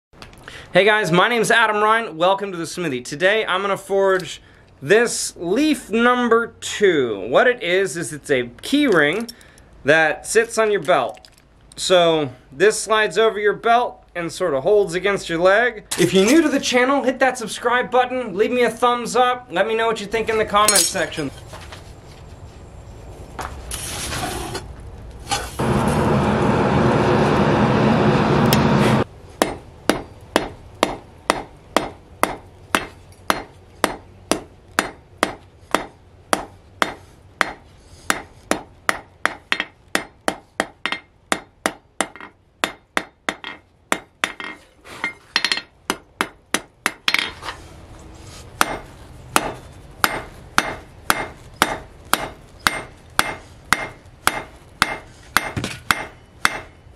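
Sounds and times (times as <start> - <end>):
hammer striking metal on anvil: 20.7 - 21.2, 29.4 - 44.6, 48.6 - 48.8, 49.4 - 56.8
loud steady noise: 25.6 - 29.1.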